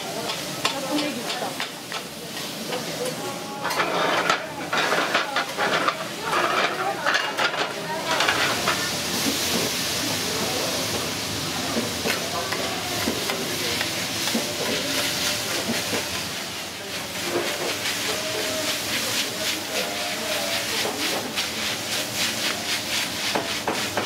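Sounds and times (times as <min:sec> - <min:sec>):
noodles sizzling on griddle: 0:00.0 - 0:24.0
metal spatulas scraping plate: 0:03.6 - 0:08.8.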